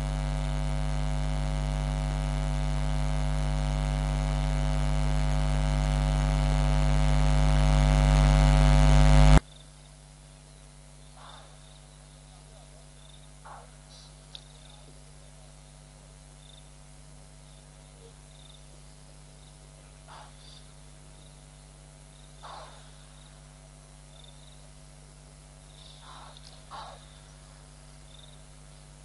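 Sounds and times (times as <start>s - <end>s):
electrical mains hum: 0.0s - 29.0s
insect chirps: 9.4s - 29.0s
short animal calls: 11.2s - 14.9s, 19.8s - 20.8s, 22.4s - 23.6s, 25.8s - 28.4s.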